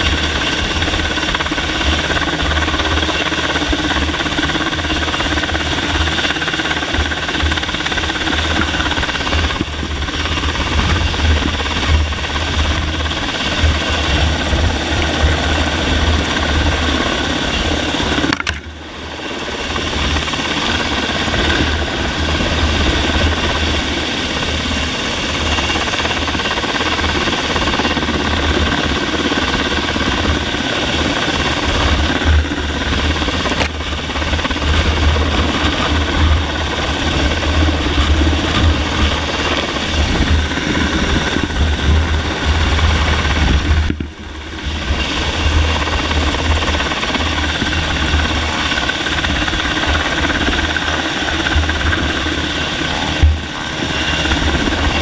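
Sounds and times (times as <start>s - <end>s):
helicopter engine and rotor rumble: 0.0s - 55.0s
rotor wash buffeting microphone: 0.0s - 55.0s.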